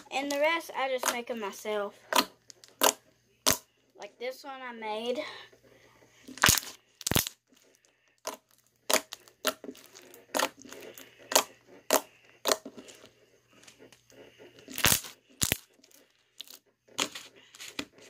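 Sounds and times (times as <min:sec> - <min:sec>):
slime popping and crackling: 0:02.1 - 0:03.6, 0:06.4 - 0:07.4, 0:08.2 - 0:12.7, 0:14.7 - 0:15.7.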